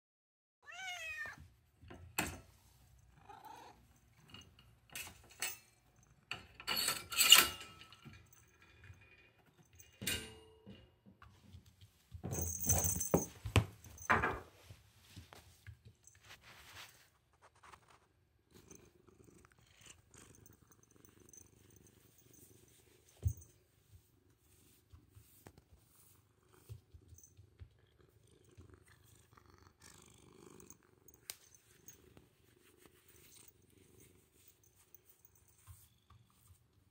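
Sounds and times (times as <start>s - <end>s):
cat meowing: 0.6s - 1.4s
handling knocks and rattles: 3.9s - 16.9s, 21.3s - 23.7s
cat purring: 18.5s - 23.1s, 25.7s - 35.3s.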